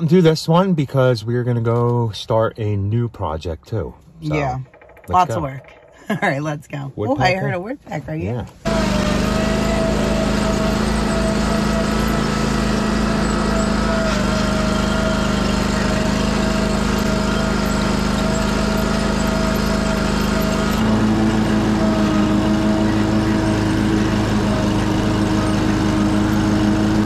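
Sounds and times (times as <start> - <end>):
lawn mower engine running: 8.6 - 27.0.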